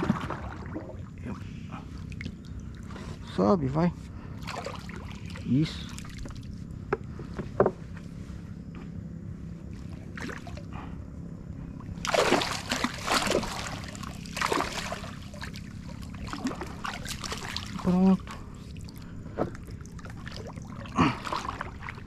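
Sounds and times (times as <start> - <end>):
fish splashing at water surface: 12.0 - 19.0.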